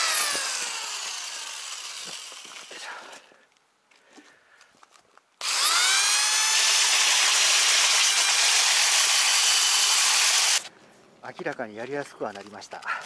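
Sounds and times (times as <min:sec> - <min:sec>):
electric sander whining: 0:00.0 - 0:02.8, 0:05.4 - 0:10.7.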